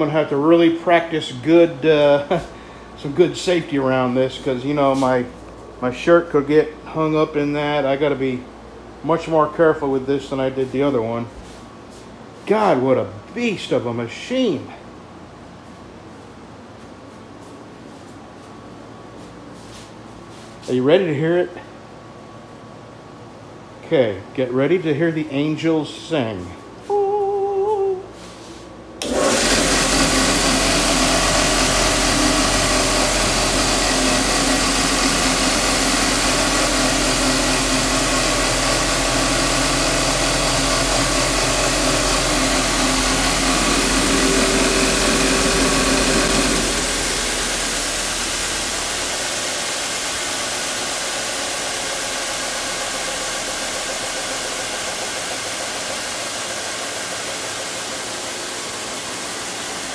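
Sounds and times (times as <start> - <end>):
belt sander motor whirring: 29.0 - 59.9.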